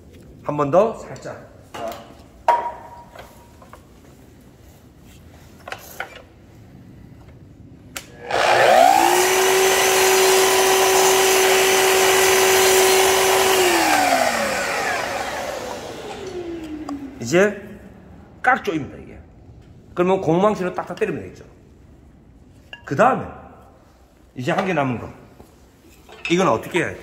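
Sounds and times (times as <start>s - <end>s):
miter saw motor whine: 8.2s - 17.2s.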